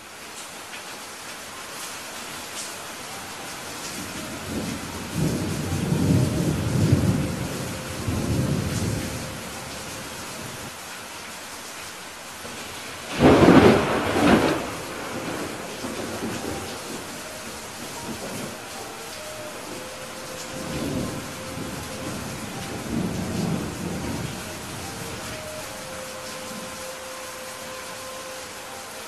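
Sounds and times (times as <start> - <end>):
steady rain: 0.0 - 29.0
low rolling thunder rumble: 4.0 - 10.7, 12.5 - 26.8
loud sharp thunderclap: 13.1 - 16.5.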